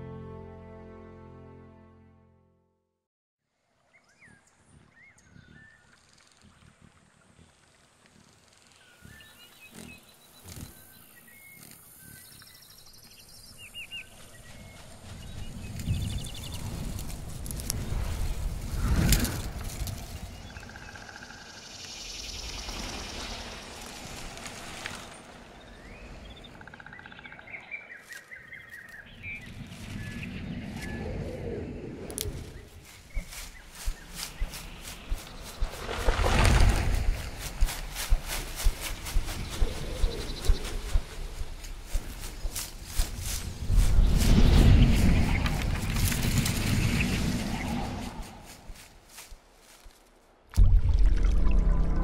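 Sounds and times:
faint forest ambience: 3.4 - 50.5
wind through leafy branches: 3.5 - 50.6
small birds chirping: 3.9 - 17.7, 19.5 - 49.8
low rumble: 50.6 - 52.0.

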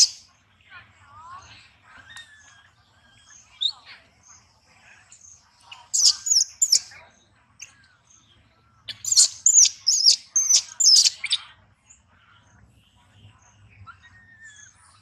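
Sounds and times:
high-pitched squeaky chirping: 0.0 - 0.2, 5.8 - 6.9, 8.9 - 11.4.

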